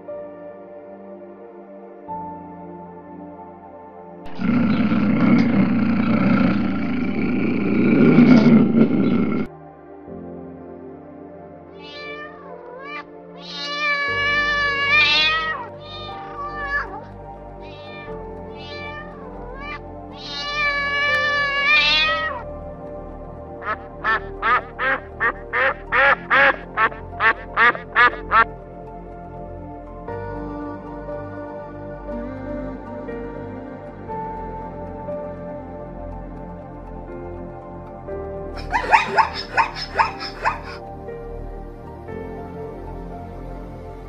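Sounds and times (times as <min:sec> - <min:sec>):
soft background music: 0:00.0 - 0:44.0
cat meowing: 0:11.8 - 0:22.4
waterfowl quacking: 0:23.6 - 0:28.5, 0:38.6 - 0:40.8.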